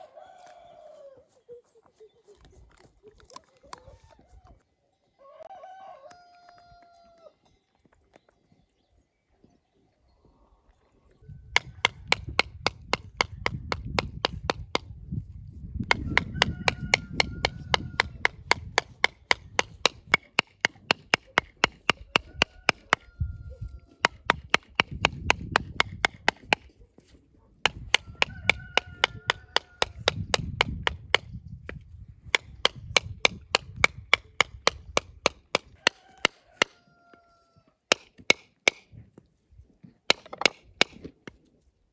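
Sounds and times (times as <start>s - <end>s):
mallet knocking on coconut: 15.9s - 23.0s.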